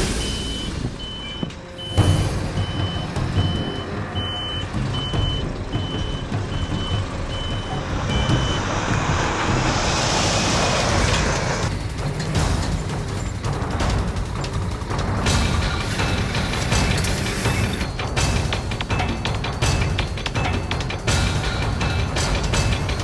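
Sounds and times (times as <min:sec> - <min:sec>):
truck reversing alarm beeps: 0:00.0 - 0:11.3
diesel truck engine rumble: 0:00.0 - 0:23.0
hiss: 0:07.7 - 0:14.0.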